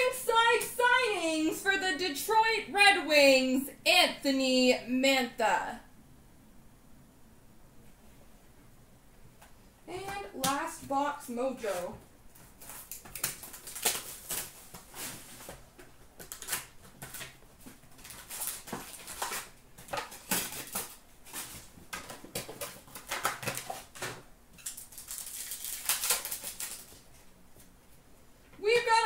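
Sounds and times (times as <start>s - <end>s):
packaging crinkling and rustling: 11.7s - 27.8s.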